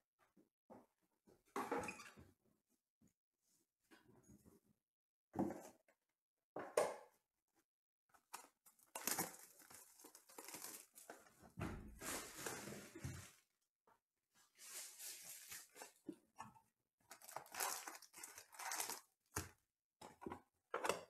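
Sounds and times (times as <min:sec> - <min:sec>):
plastic wrapping tearing and crinkling: 0:08.8 - 0:11.1, 0:17.1 - 0:19.1.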